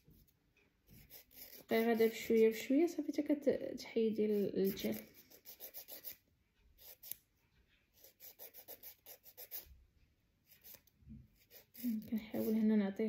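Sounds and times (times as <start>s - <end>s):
nail file scratching a fingernail: 0.9s - 2.7s, 4.2s - 6.2s, 6.8s - 7.2s, 7.9s - 9.8s, 10.4s - 12.6s.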